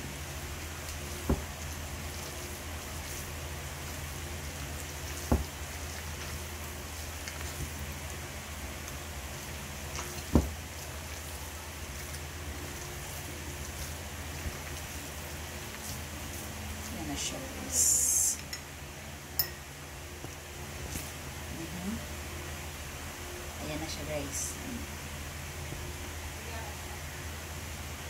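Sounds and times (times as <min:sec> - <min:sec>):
hands mixing food in a bowl: 0:00.0 - 0:22.2
steady hiss with low hum: 0:00.0 - 0:28.0.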